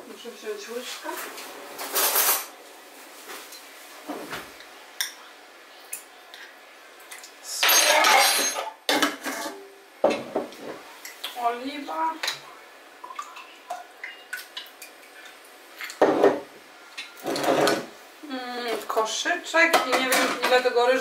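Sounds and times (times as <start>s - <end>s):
kitchenware clatter: 1.0s - 2.6s, 7.5s - 10.8s, 15.8s - 17.9s, 19.6s - 20.8s
kitchenware clinking and knocking: 7.6s - 10.8s, 16.0s - 16.5s, 17.2s - 17.9s, 19.7s - 20.6s.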